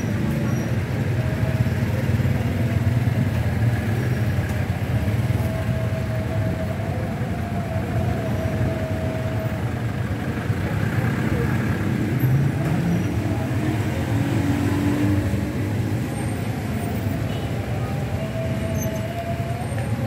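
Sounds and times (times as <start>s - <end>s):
engines idling: 0.0s - 20.0s.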